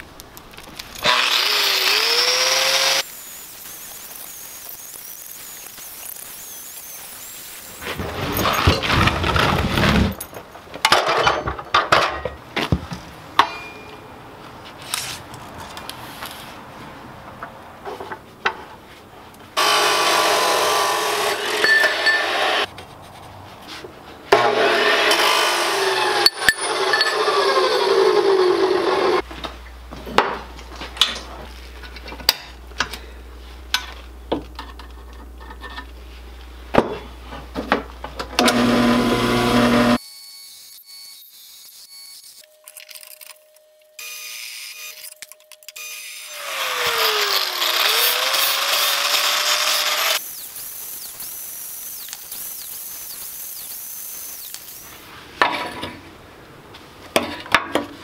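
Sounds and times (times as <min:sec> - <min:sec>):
saw blade winding down whine: 0:01.0 - 0:08.0, 0:19.6 - 0:22.7, 0:24.5 - 0:29.2, 0:38.4 - 0:42.5, 0:45.8 - 0:55.0
chop saw cutting steel: 0:01.0 - 0:08.8, 0:19.6 - 0:22.7, 0:24.3 - 0:29.2, 0:38.4 - 0:42.4, 0:45.8 - 0:55.5
drill press motor hum: 0:38.4 - 0:40.0.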